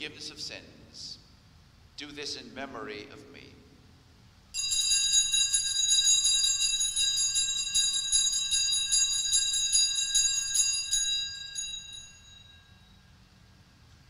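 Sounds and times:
altar bells ringing: 0:04.6 - 0:13.1.

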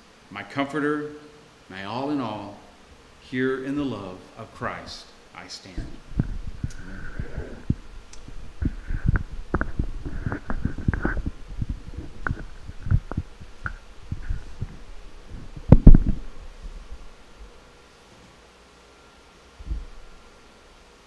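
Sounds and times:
microphone handling bumps and rubbing: 0:05.7 - 0:17.5, 0:19.6 - 0:20.1.

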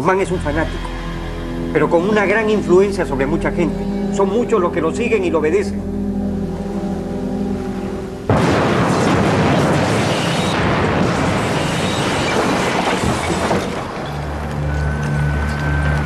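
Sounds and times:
thin high held tone: 0:00.0 - 0:08.2
low music: 0:00.0 - 0:09.5
bomb blast: 0:08.3 - 0:14.0
explosion rumble: 0:08.3 - 0:14.5
falling debris clatter: 0:08.3 - 0:14.7.

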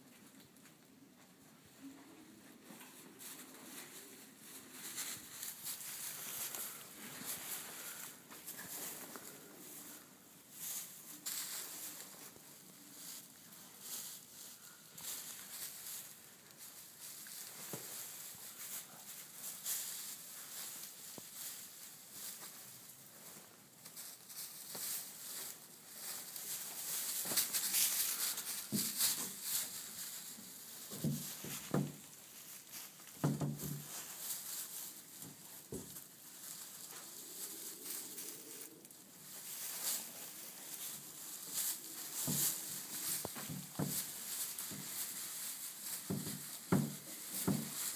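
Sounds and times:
straw rustling and crackling: 0:02.1 - 0:47.9.

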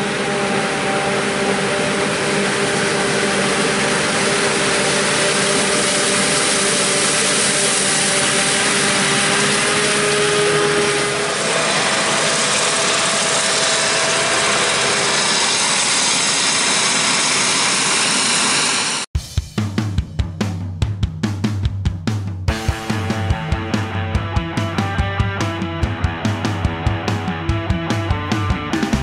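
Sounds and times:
forage harvester engine whining: 0:00.0 - 0:19.1
tractor running: 0:00.0 - 0:19.1, 0:22.5 - 0:29.0.

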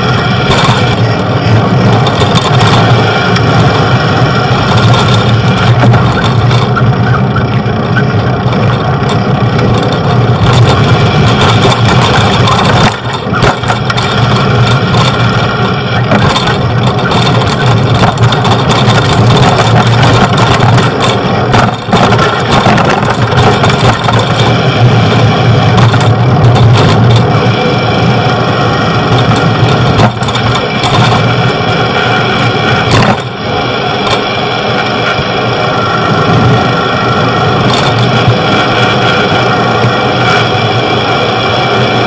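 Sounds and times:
motor traffic: 0:00.0 - 0:42.0.

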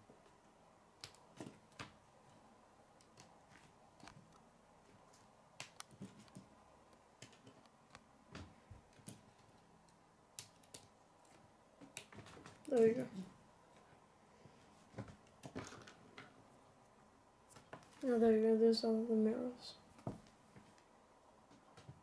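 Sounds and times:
plastic pieces clicking: 0:10.4 - 0:12.9.

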